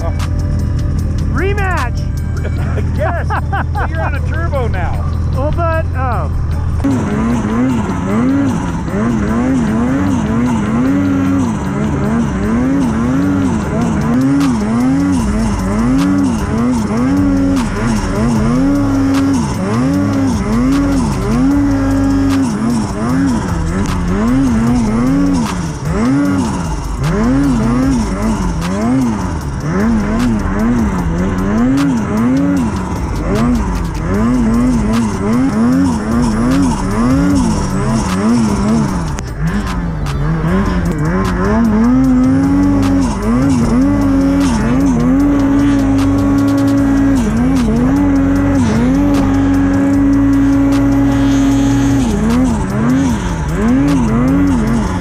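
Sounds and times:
snowmobile engine revving: 0.0s - 55.0s.

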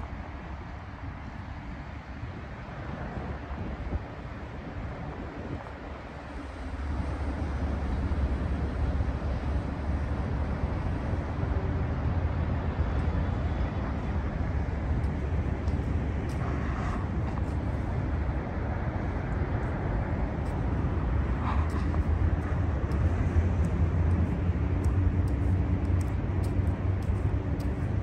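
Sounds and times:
city traffic rumble: 0.0s - 28.0s.

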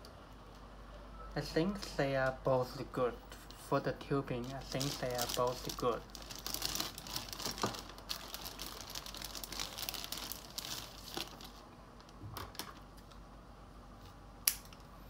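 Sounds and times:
plastic bags crinkling: 4.3s - 11.7s.

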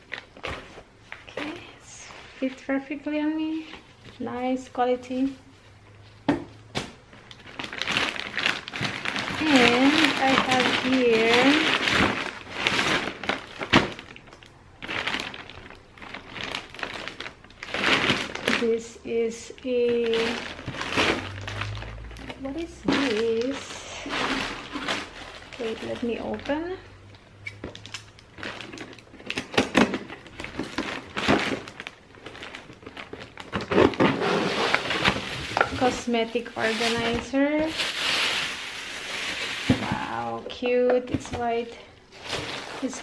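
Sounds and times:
plastic mailer bag crinkling: 6.8s - 40.5s, 41.2s - 43.0s
cardboard box scraping and rustling: 33.6s - 35.7s.

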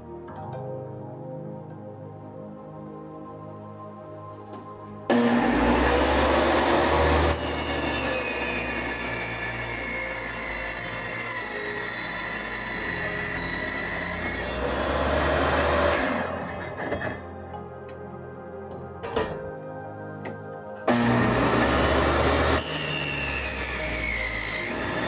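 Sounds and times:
power tool rasping: 5.1s - 17.3s, 20.9s - 25.0s.

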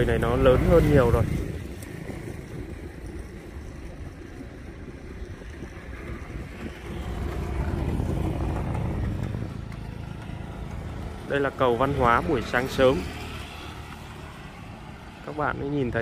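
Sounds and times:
wind noise: 0.0s - 13.1s
motor vehicle rumble: 0.0s - 16.0s.

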